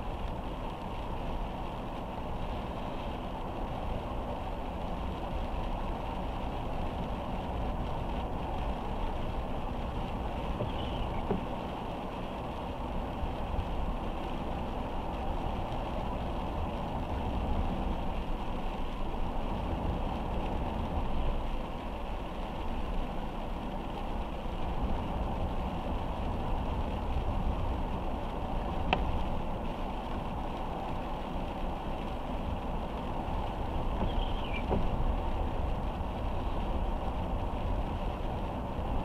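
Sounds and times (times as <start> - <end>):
road and rain noise: 0.0 - 39.0.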